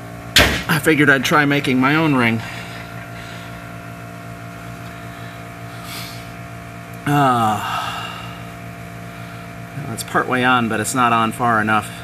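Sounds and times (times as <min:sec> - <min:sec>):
machine hum: 0:00.0 - 0:12.0
man grunting: 0:07.0 - 0:08.4.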